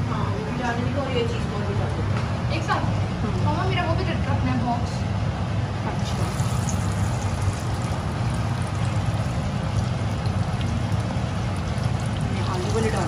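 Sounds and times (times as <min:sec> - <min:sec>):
steady low hum: 0:00.0 - 0:13.0
potato slices sizzling in oil: 0:06.0 - 0:11.6.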